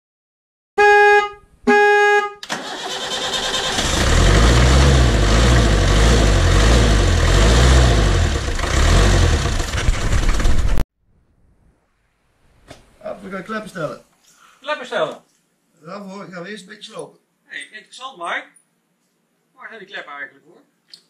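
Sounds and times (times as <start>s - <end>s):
vehicle horn beeps: 0.8s - 2.4s
engine rumbling: 2.5s - 10.8s.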